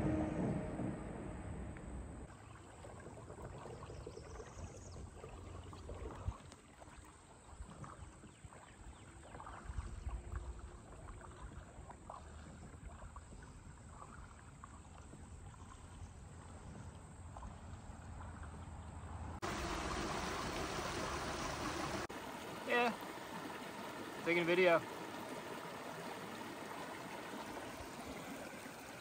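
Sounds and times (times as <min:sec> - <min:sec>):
low rumble: 0:00.0 - 0:02.3
light water splashes and drips: 0:02.2 - 0:29.0.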